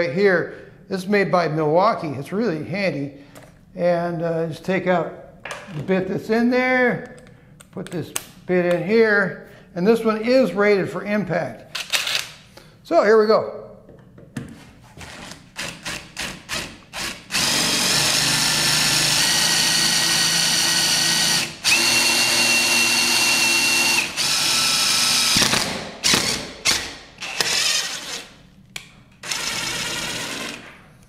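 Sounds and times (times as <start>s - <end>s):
impact driver drilling into steel: 15.6s - 28.3s, 29.2s - 30.7s.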